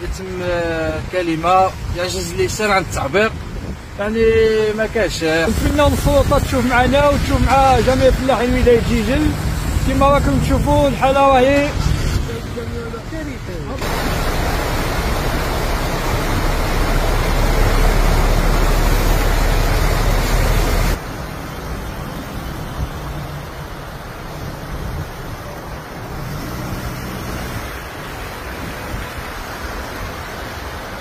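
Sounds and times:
wind buffeting microphone: 0.0 - 21.0
floodwater rushing: 0.0 - 31.0.

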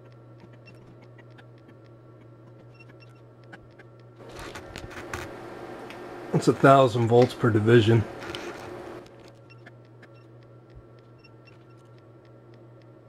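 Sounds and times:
faint ticks: 0.0 - 4.2, 9.4 - 13.0
electrical hum: 0.0 - 13.0.

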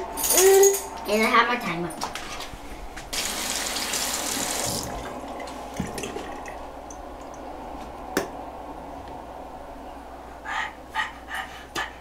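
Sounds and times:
faucet running into sink: 3.2 - 5.0.

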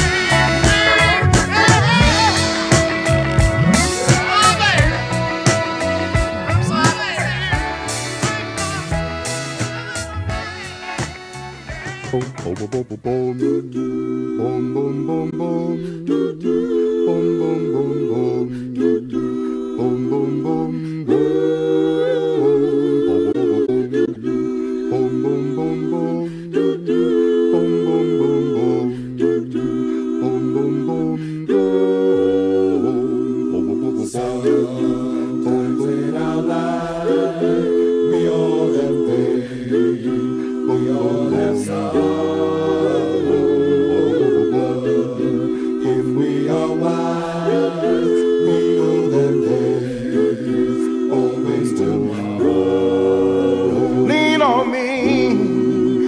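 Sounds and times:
bass voice line: 0.0 - 13.0
vocal group singing in harmony: 0.0 - 56.0.

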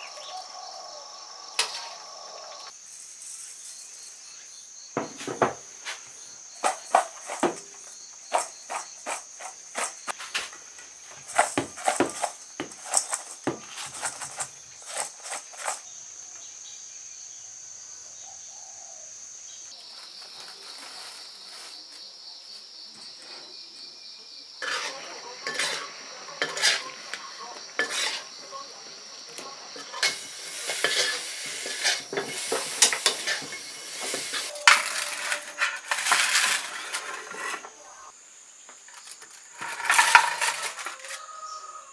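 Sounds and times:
crickets chirring: 0.0 - 41.9
sharp knocks and scrapes: 5.0 - 15.9, 24.6 - 28.5, 29.4 - 37.8, 39.0 - 41.3
steel bowl clinking and rattling: 24.6 - 27.0, 29.8 - 37.6, 39.6 - 41.2.

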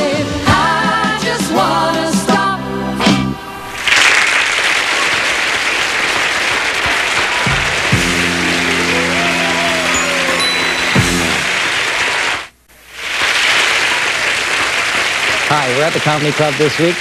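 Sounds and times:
audience applauding: 3.7 - 17.0.

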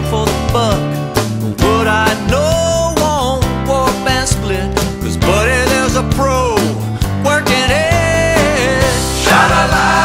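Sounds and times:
song with drum beat and bass: 0.0 - 10.0.

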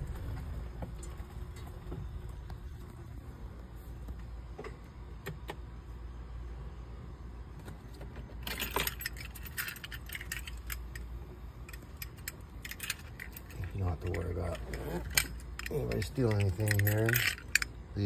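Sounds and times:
low steady hum: 0.0 - 18.0
keys jangling: 8.4 - 11.1, 11.7 - 17.7.

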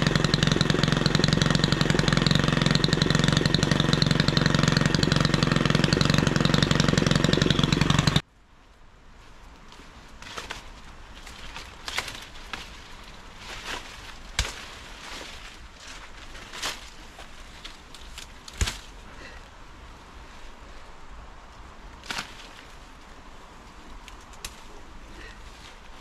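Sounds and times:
rustling foliage: 0.0 - 26.0
stems snapping: 9.6 - 19.0, 21.5 - 22.8, 23.6 - 26.0.

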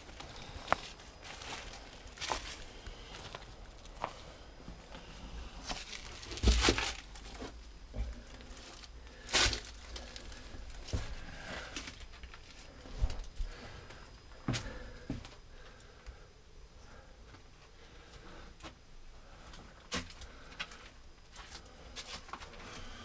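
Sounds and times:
footsteps crunching on gritty concrete: 0.2 - 7.5.

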